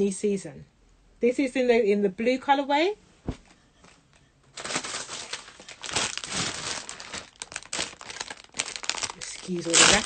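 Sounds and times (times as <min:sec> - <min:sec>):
plastic wrapping crinkling: 0:04.6 - 0:10.0.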